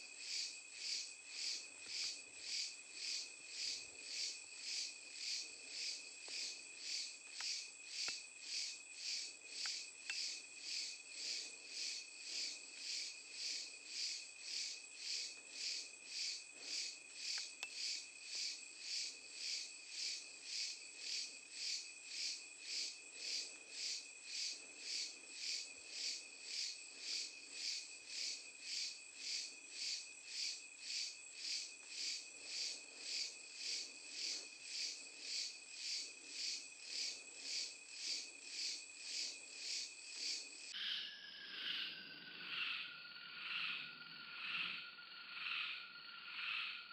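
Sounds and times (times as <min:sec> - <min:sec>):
insects pulsing chorus: 0:00.0 - 0:46.9
faint ticks: 0:01.8 - 0:02.2, 0:07.3 - 0:08.7, 0:09.6 - 0:10.3, 0:17.3 - 0:18.5.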